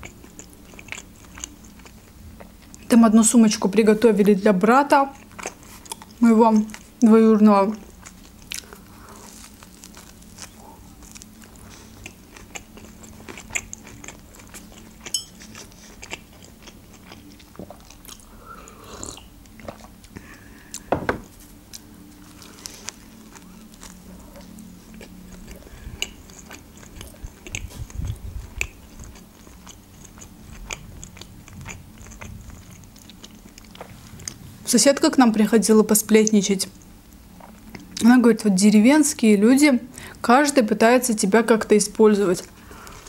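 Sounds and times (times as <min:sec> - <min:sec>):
chewing bread crust: 0:00.0 - 0:02.9, 0:05.0 - 0:34.4.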